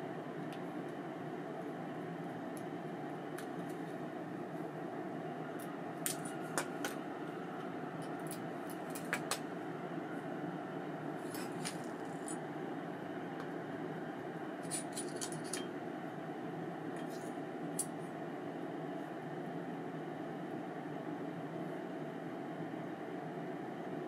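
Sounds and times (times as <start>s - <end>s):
metallic clicks of reel parts: 14.6s - 15.7s.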